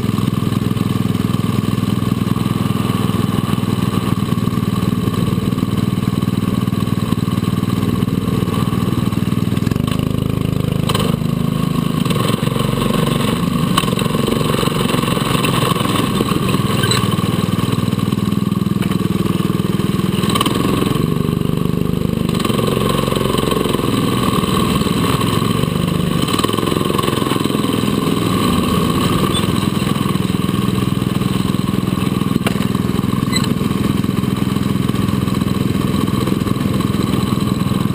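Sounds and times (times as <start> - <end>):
go-kart engines droning: 0.0 - 37.9.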